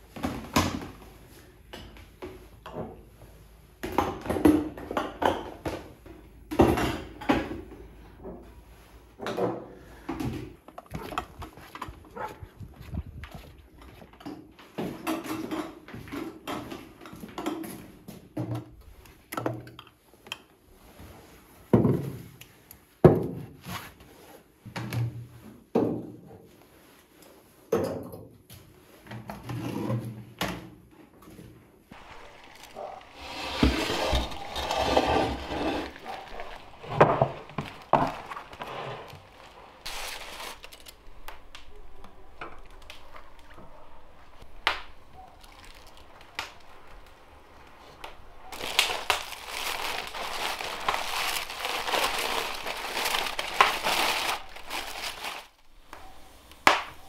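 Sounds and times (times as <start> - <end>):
glass jars set on wooden shelves: 1.6 - 23.9, 27.7 - 28.4, 29.0 - 40.0
footsteps on paving stones: 11.4 - 14.1
rustling: 31.9 - 57.0.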